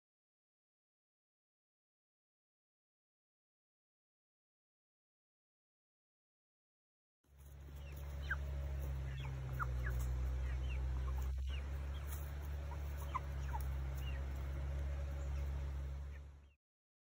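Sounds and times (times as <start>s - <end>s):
chickens peeping and clucking: 7.3s - 16.6s
steady low rumble: 7.3s - 16.6s.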